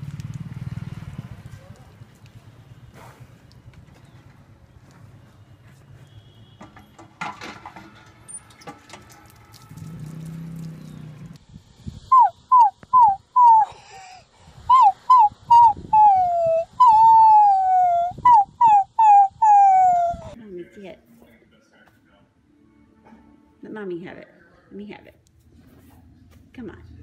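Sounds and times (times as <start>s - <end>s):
puppy howling and crying: 12.1s - 13.8s, 14.7s - 20.4s.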